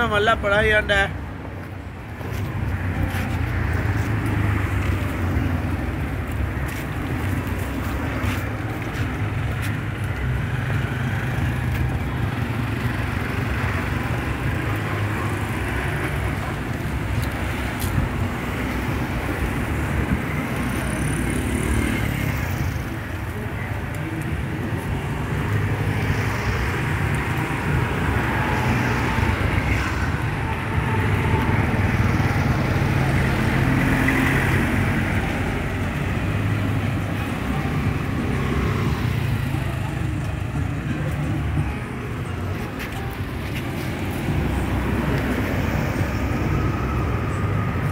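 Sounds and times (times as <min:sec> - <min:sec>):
road traffic noise: 0:00.0 - 0:47.9.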